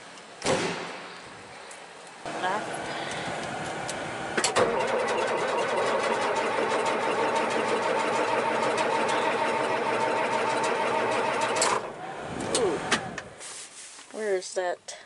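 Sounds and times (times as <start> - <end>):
tractor diesel engine running: 2.3 - 13.5.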